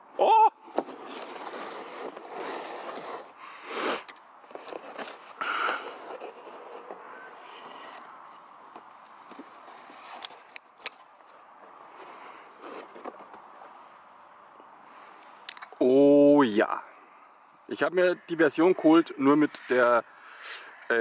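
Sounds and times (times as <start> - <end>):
cardboard scraping and rustling: 0.7 - 8.1, 9.2 - 13.8.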